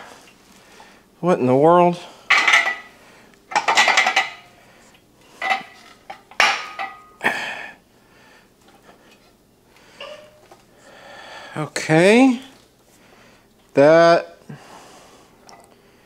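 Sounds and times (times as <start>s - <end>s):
steel parts clanking and rattling: 2.3s - 2.9s, 3.5s - 4.5s.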